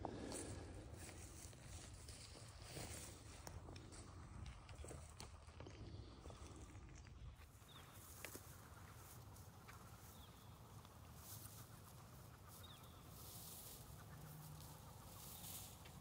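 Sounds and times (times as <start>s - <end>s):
faint bird chirps: 7.4s - 16.0s.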